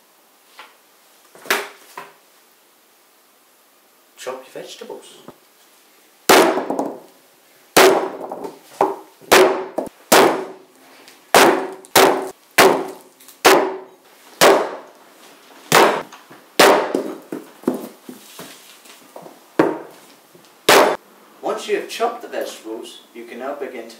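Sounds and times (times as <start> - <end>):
axe chopping on wooden board: 6.3 - 7.0, 7.8 - 10.6, 11.4 - 14.9, 15.7 - 17.9, 19.6 - 19.9, 20.7 - 21.0.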